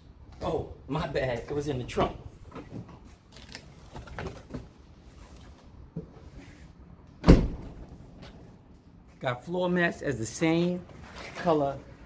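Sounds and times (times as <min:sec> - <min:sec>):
rustling of bags and packaging: 0:02.4 - 0:05.6.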